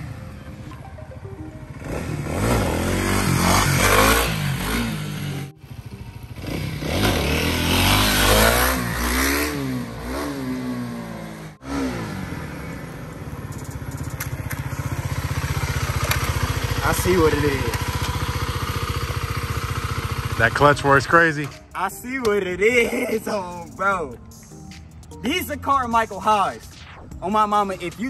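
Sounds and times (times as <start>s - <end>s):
motorcycle engine accelerating: 0.0s - 21.6s.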